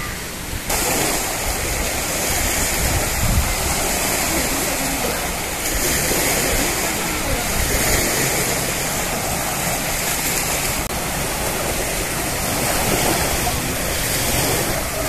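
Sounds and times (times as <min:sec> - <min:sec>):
indistinct voices: 0:00.0 - 0:15.0
small waves breaking on sand: 0:00.0 - 0:15.0.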